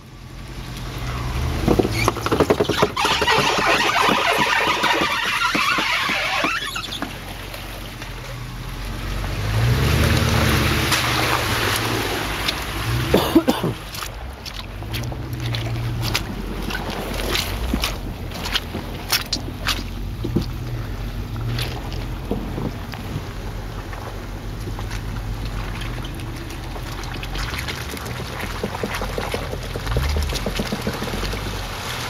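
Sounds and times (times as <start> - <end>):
tires splashing through mud: 0.0 - 32.0
engine revving: 8.5 - 32.0.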